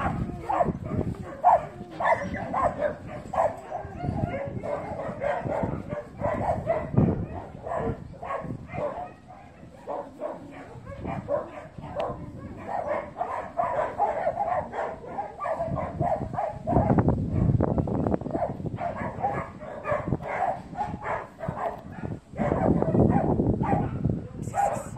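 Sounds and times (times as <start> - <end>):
low rumbles on microphone: 0.0 - 13.7, 14.3 - 24.9
dog barking and yipping: 0.0 - 24.9.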